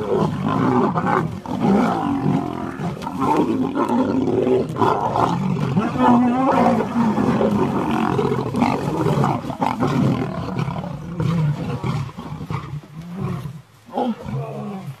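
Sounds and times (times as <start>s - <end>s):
lions growling and snarling: 0.0s - 15.0s.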